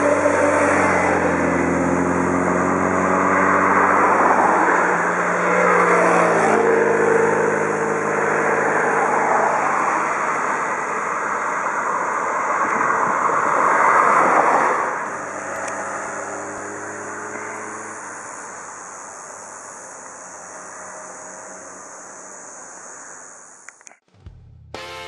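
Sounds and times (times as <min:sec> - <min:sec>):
car passing close by: 0:00.0 - 0:18.6
tyre and road noise: 0:00.0 - 0:25.0
motorcycle engine: 0:24.0 - 0:25.0.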